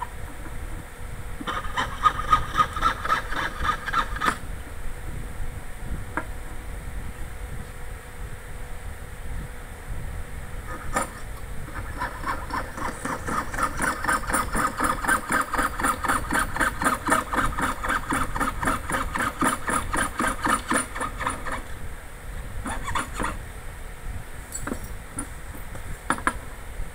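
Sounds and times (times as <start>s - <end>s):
saw blade rasping through metal: 1.4s - 4.4s, 10.7s - 21.7s, 22.6s - 23.4s.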